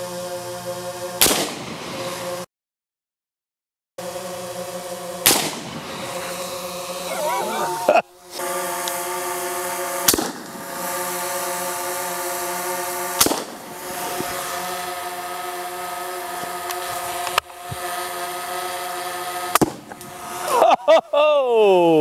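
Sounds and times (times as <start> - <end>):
drone propeller hum: 0.0 - 2.5, 4.0 - 22.0
suppressed rifle shots: 1.2 - 1.7, 5.2 - 5.8, 10.0 - 10.6, 13.2 - 13.6.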